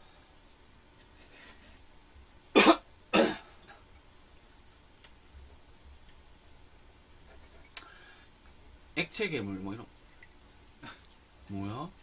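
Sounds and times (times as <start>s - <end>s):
person coughing: 2.6s - 3.6s.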